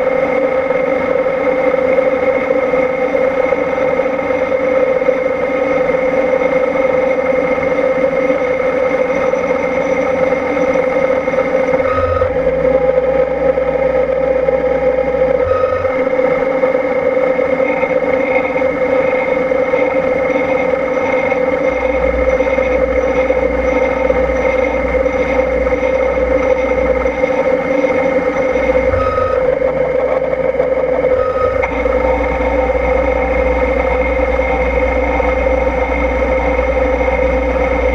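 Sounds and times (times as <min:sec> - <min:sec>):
axis drives humming: 0:00.0 - 0:37.9
milling machine spindle whine: 0:00.0 - 0:37.9
metal cutting noise: 0:08.0 - 0:37.9.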